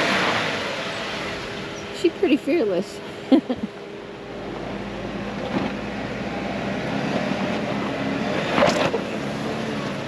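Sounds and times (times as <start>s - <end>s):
engine running at low revs: 0.0s - 10.0s.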